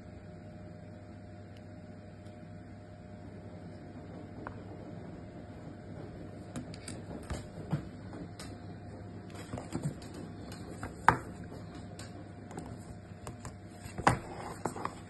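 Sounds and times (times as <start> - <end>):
cardboard box handling on table: 9.3 - 11.7, 12.5 - 15.0.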